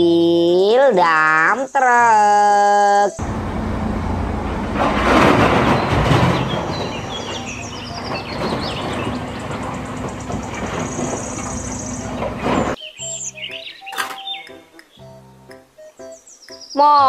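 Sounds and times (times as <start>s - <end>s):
diesel engine running: 3.2s - 12.8s
earth pouring into steel truck bed: 4.6s - 12.8s.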